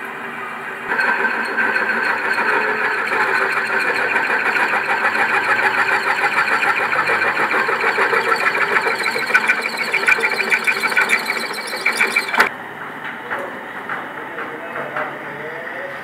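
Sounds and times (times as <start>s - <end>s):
drill press cutting steel: 0.7s - 12.5s.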